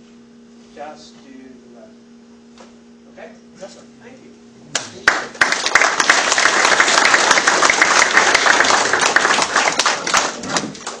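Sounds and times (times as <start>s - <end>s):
audience applauding: 4.8s - 11.0s.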